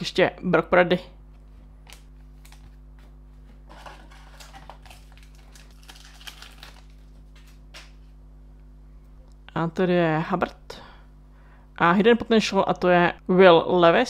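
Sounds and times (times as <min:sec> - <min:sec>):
foil wrapper crinkling: 0:03.7 - 0:08.0.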